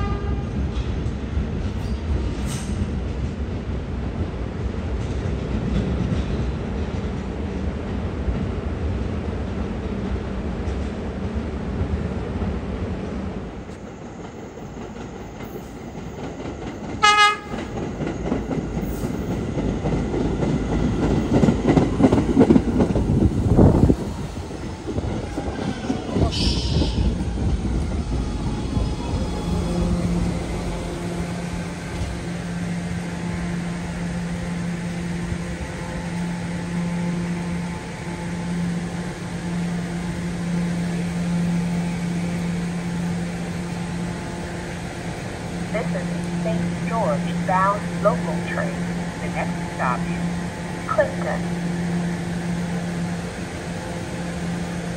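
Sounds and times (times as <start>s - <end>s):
subway train horn blast: 0.0s - 0.8s, 16.9s - 17.9s, 29.1s - 54.9s
standing train humming: 0.0s - 54.9s
train rumbling to a stop: 0.0s - 54.9s.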